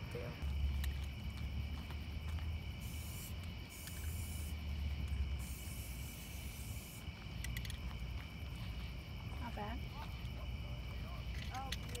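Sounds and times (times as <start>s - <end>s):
insect chirring: 0.0s - 12.0s
spray paint can hissing: 2.8s - 7.8s
sharp clicks: 7.4s - 7.8s, 11.3s - 12.0s.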